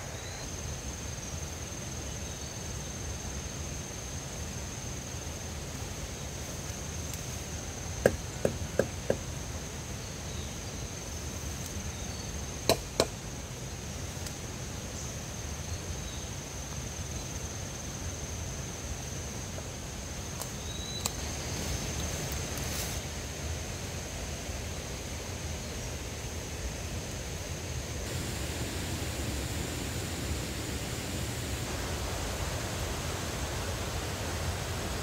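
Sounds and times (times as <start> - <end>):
low outdoor background noise: 0.0 - 35.0
sharp strikes on wood: 8.0 - 9.2, 12.7 - 13.2
steady high whine: 27.8 - 35.0.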